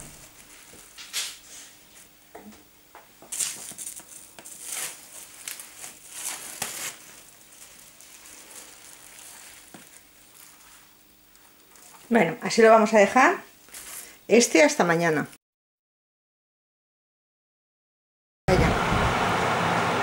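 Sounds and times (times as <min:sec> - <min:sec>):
plastic cling film crinkling: 0:00.0 - 0:01.7, 0:03.2 - 0:12.2, 0:13.6 - 0:14.2.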